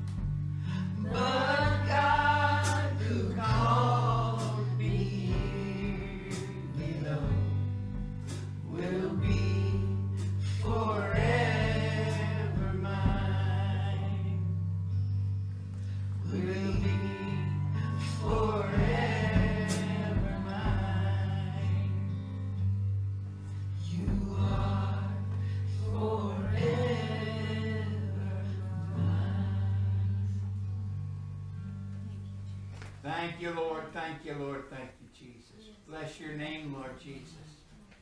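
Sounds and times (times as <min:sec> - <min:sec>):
sustained bass line: 0:00.0 - 0:32.8
person singing gospel: 0:00.5 - 0:14.9, 0:15.7 - 0:22.8, 0:23.4 - 0:30.9.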